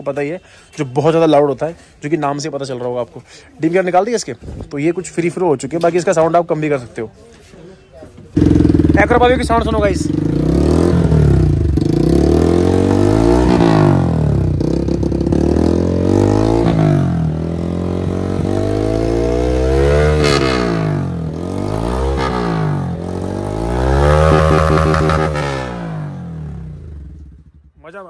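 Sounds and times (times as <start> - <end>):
motorcycle engine revving: 8.3 - 27.9.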